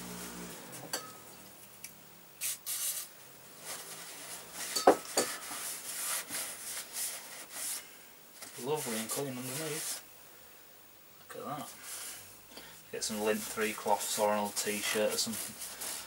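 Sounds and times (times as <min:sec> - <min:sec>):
paper towel scrubbing metal: 0:02.8 - 0:10.0, 0:13.0 - 0:16.0.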